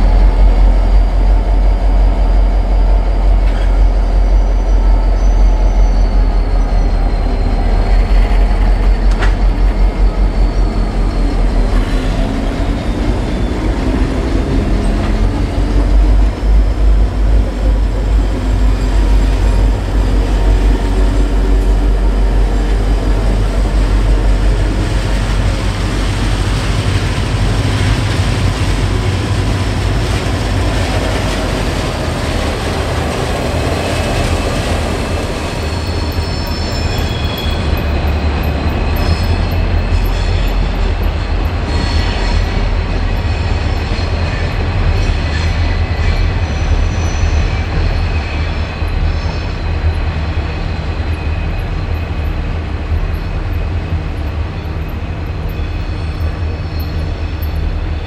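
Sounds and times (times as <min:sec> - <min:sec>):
wheel squeals: 0:33.4 - 0:40.8.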